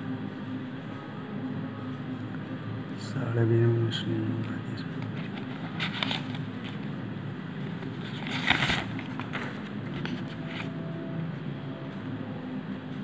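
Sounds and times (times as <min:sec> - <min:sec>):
tissue paper rustling: 0:05.1 - 0:06.9, 0:07.7 - 0:10.7.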